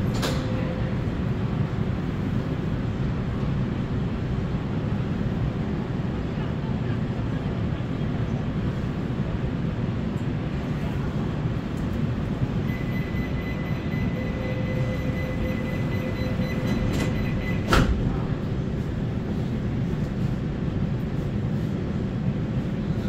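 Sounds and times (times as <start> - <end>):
train doors shutting clunk: 0.0 - 1.1, 13.2 - 18.3
low rumble of a train: 0.0 - 23.0
high warning tone: 12.6 - 17.7.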